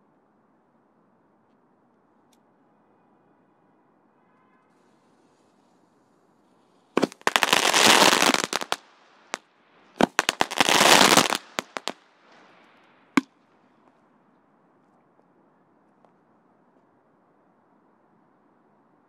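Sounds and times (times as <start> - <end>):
firecracker bangs: 7.0 - 8.8, 10.0 - 12.0
firecrackers crackling pops: 7.0 - 13.3.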